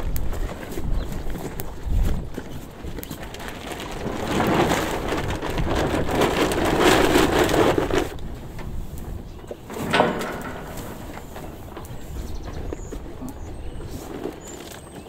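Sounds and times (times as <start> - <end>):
feed pattering into metal feeder: 9.5 - 12.1.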